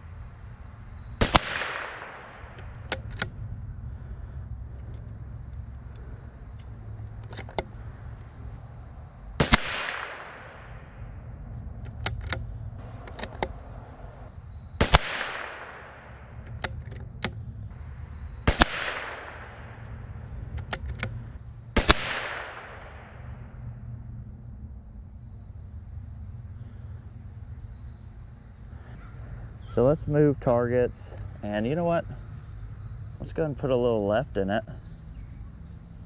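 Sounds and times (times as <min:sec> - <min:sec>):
rifle shots with ringing tail: 0:01.2 - 0:03.0, 0:09.4 - 0:11.2, 0:14.8 - 0:16.5, 0:17.9 - 0:20.2, 0:21.7 - 0:23.6
rifle bolt clicks: 0:01.5 - 0:03.3, 0:11.8 - 0:13.6, 0:16.4 - 0:17.4, 0:20.5 - 0:21.2.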